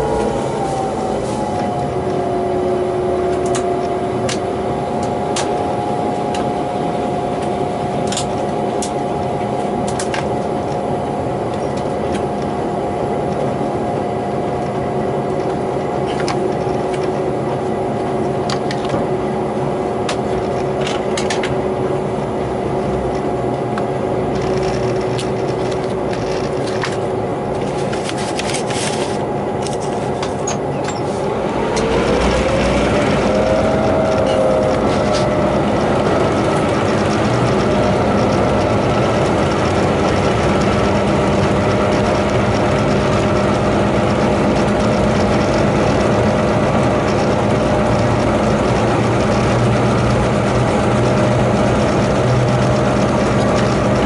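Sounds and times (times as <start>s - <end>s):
whining tone: 0.0s - 12.9s, 28.0s - 54.0s
diesel locomotive droning: 0.0s - 54.0s.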